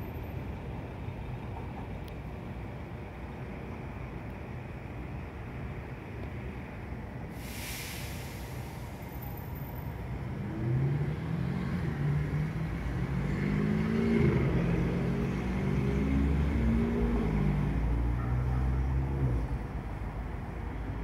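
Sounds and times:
low traffic rumble: 0:00.0 - 0:21.0
vehicle accelerating: 0:10.2 - 0:21.0.

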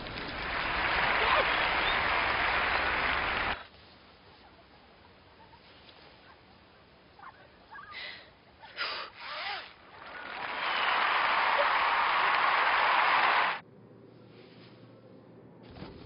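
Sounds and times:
applause: 0:00.0 - 0:03.6, 0:10.0 - 0:13.6.

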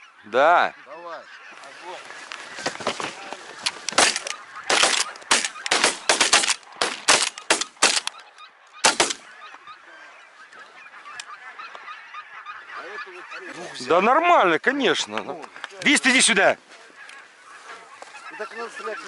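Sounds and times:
geese honking: 0:00.0 - 0:19.0
shotgun shots: 0:03.9 - 0:08.1, 0:08.8 - 0:09.3.

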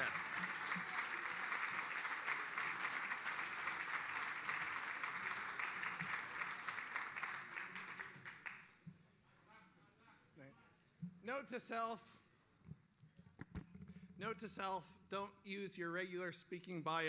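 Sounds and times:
audience applauding: 0:00.0 - 0:08.7.

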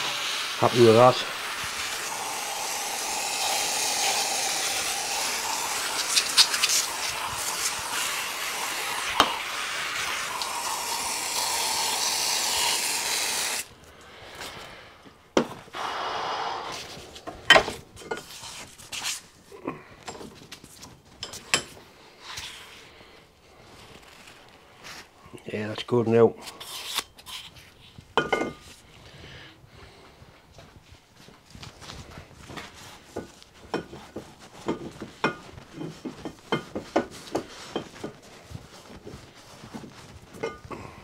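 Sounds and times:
drill wire brush scrubbing metal: 0:00.0 - 0:13.7.

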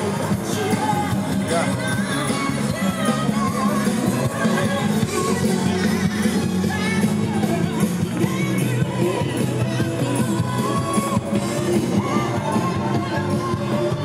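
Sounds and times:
pop music with singing: 0:00.0 - 0:14.0.

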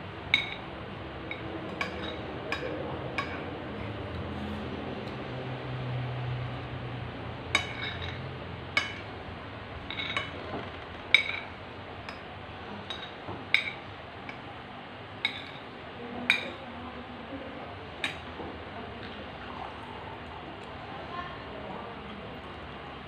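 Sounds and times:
spoons clinking on plates: 0:00.3 - 0:00.7, 0:01.3 - 0:04.0, 0:07.5 - 0:09.1, 0:09.9 - 0:10.4, 0:11.1 - 0:14.4, 0:15.2 - 0:15.7, 0:16.3 - 0:16.6.

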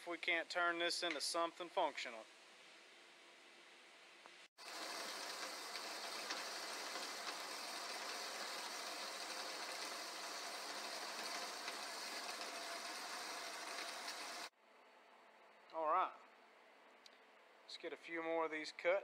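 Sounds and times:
bandsaw blade cutting steel: 0:04.6 - 0:14.5.

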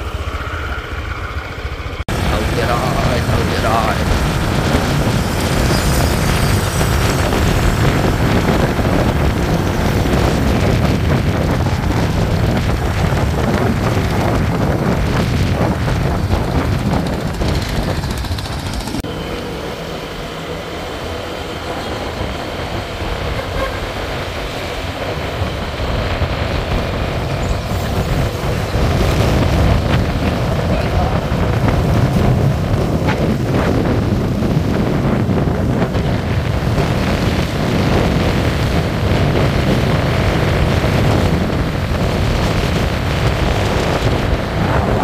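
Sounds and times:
vehicle road and engine rumble: 0:00.0 - 0:45.0.

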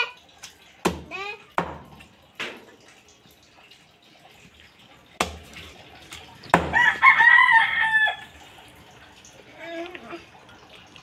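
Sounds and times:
rooster crowing: 0:06.7 - 0:08.3.

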